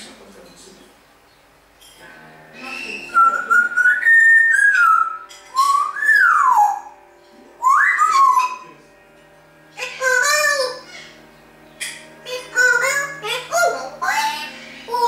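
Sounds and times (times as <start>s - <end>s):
parrot whistling: 2.6s - 7.0s, 7.6s - 8.7s.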